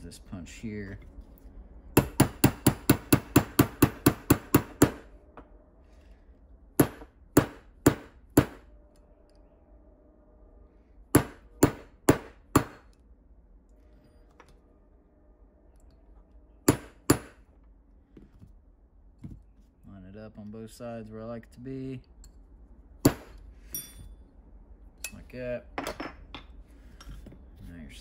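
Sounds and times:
hammer tapping steel punch: 2.0s - 5.0s, 6.8s - 8.6s, 16.7s - 17.4s.

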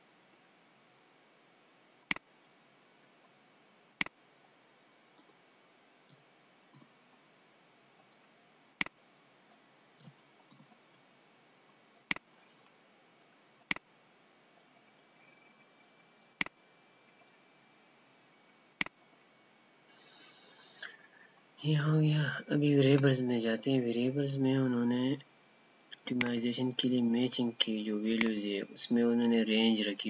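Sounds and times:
faint steady hiss: 0.0s - 30.0s.

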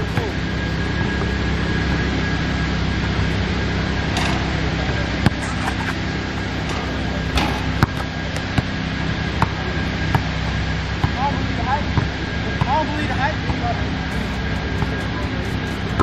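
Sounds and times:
steady background rumble: 0.0s - 16.0s
basketball bouncing on court: 5.2s - 5.7s, 7.0s - 11.2s, 12.0s - 12.8s.

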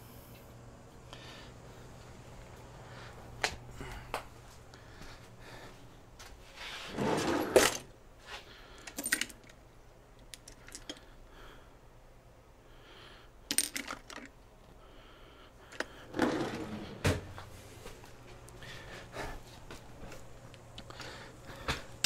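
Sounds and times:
tools rattling: 8.8s - 9.6s, 13.5s - 14.4s.

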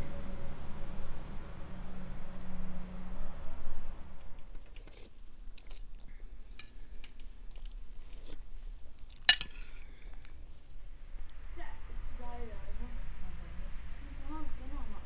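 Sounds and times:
person chewing: 4.7s - 11.3s
cutlery clink: 9.2s - 9.8s.

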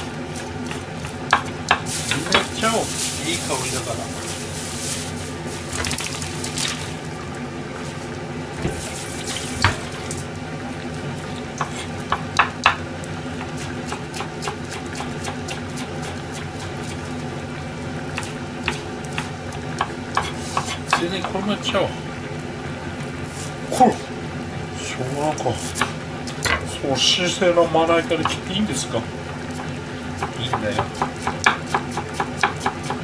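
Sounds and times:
knife tapping on wooden board: 11.6s - 12.8s, 30.2s - 33.0s.

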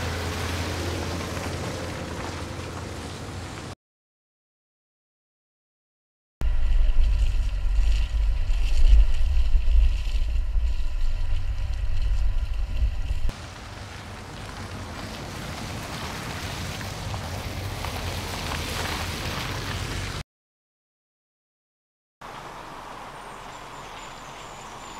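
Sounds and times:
car engine and tyre noise: 0.0s - 3.8s, 6.4s - 20.2s, 22.2s - 24.9s
car rushing on forest track: 0.0s - 3.8s
wind rumble on microphone: 6.4s - 20.1s.

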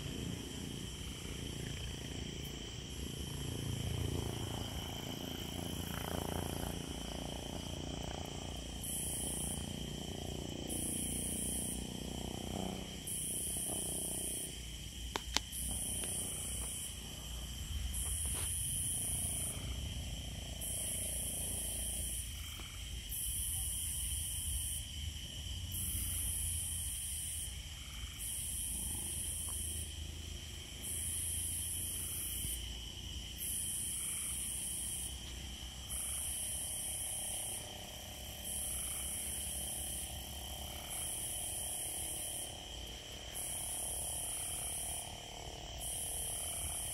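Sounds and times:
low steady rumble: 0.0s - 10.7s
insects trilling: 0.0s - 46.9s
pulsing insect buzzing: 0.0s - 46.9s.

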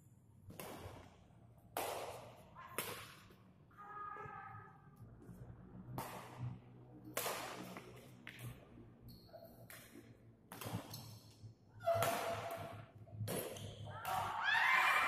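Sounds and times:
rackets hitting shuttlecock: 0.5s - 3.4s, 5.9s - 8.5s, 9.4s - 14.4s.

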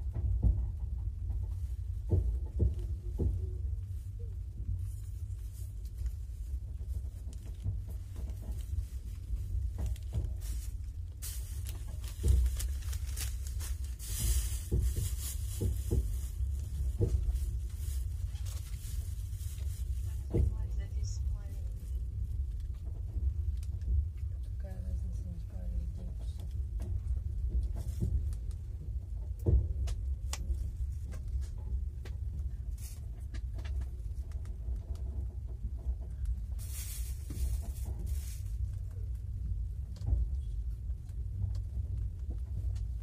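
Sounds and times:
train carriage rumble: 0.0s - 43.0s.

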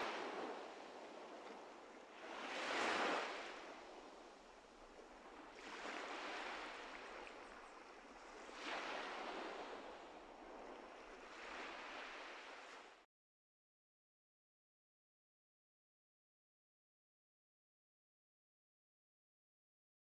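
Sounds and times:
ocean waves washing in: 0.0s - 13.0s.

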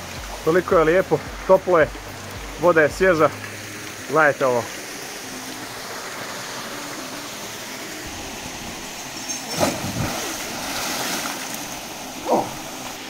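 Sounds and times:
waterfall rushing into pool: 0.0s - 13.0s
person splashing into water: 9.5s - 13.0s.

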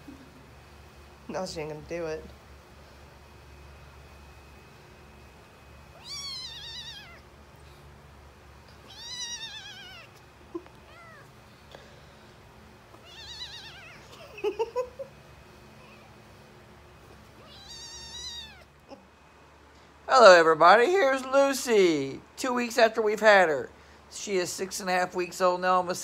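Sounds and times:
kitten mewing: 5.9s - 7.3s, 8.7s - 11.4s, 13.0s - 14.4s, 17.4s - 19.0s.

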